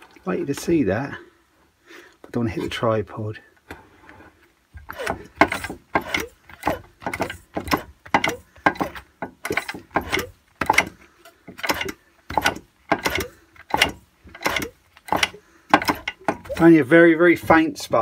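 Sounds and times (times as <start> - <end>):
engine turned over by hand: 4.8 - 17.7.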